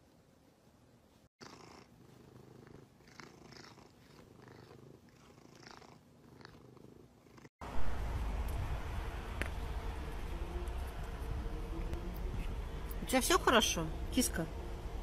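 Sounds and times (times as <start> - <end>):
cat purring: 1.4 - 7.5.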